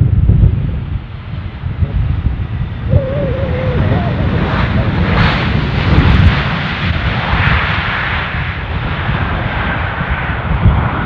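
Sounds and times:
jet aircraft passing: 0:02.6 - 0:11.0.

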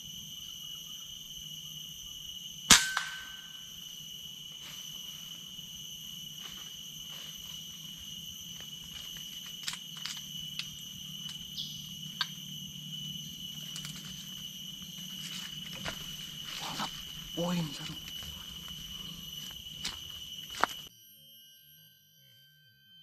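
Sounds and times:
insects droning: 0:00.0 - 0:23.0
air rifle shot ringing: 0:02.7 - 0:03.5.

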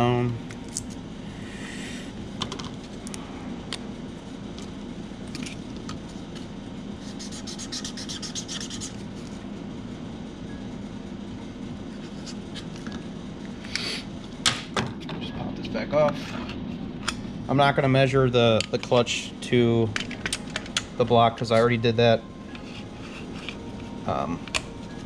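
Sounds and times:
steady low hum: 0:00.0 - 0:25.0
marker scratching on paper: 0:07.0 - 0:09.3.

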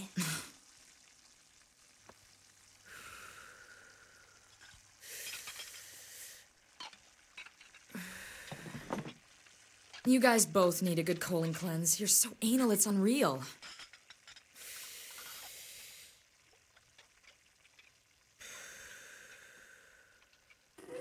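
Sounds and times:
woman exhaling smoke: 0:02.8 - 0:06.5, 0:07.9 - 0:09.0, 0:14.5 - 0:16.2, 0:18.4 - 0:21.0.

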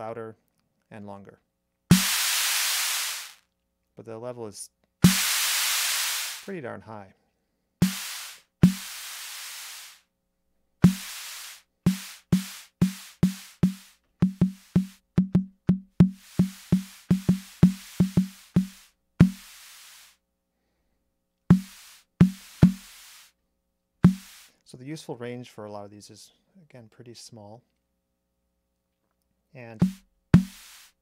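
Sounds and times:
analog snare drum hits: 0:01.9 - 0:03.4, 0:05.0 - 0:06.5, 0:07.8 - 0:09.8, 0:10.8 - 0:19.6, 0:21.5 - 0:23.3, 0:24.0 - 0:24.5, 0:29.8 - 0:30.9.

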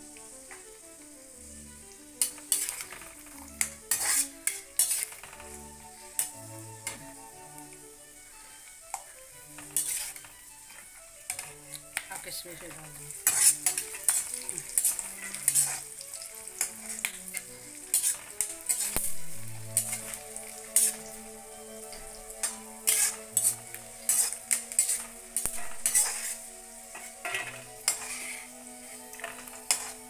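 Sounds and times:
nuts sizzling in hot fat: 0:00.0 - 0:30.0
ladle scraping and clinking pan: 0:02.2 - 0:07.1, 0:09.6 - 0:16.0, 0:16.6 - 0:21.1, 0:22.4 - 0:30.0.

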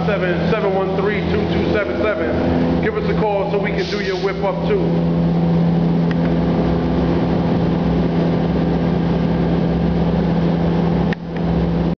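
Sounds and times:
machine hum: 0:00.0 - 0:12.0.

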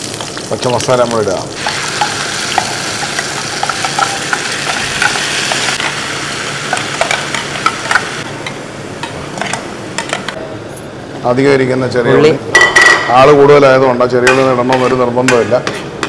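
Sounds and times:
paste sizzling in oil: 0:00.0 - 0:08.2.

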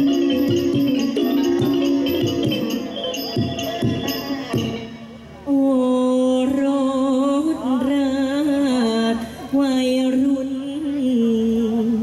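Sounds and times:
person singing through microphone: 0:05.5 - 0:12.0.

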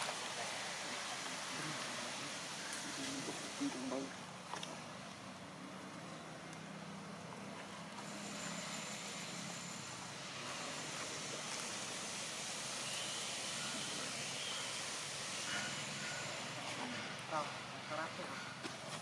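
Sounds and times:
outdoor background hiss: 0:00.0 - 0:19.0.

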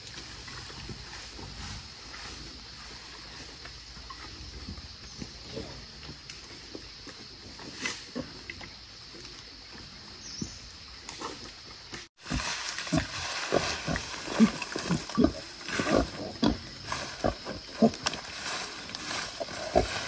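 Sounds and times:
dry brush rustling: 0:12.2 - 0:15.8, 0:16.8 - 0:20.0
wild boar grunting: 0:12.8 - 0:18.2.

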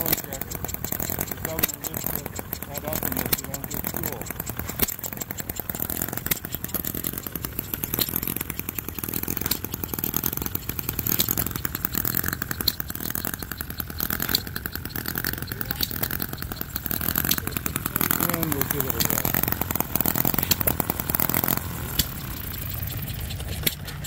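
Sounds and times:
small model engine running: 0:00.0 - 0:24.0.

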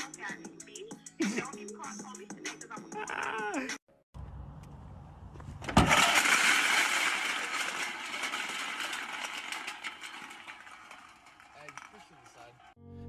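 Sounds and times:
loud crash: 0:05.7 - 0:12.3.

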